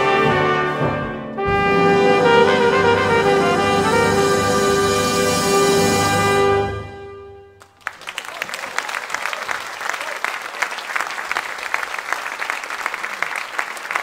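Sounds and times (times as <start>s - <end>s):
audience applause: 7.6s - 14.0s.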